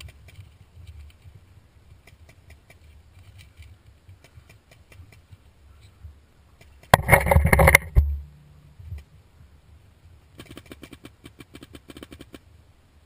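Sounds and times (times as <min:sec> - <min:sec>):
paintball marker rapid firing: 0:10.4 - 0:12.4.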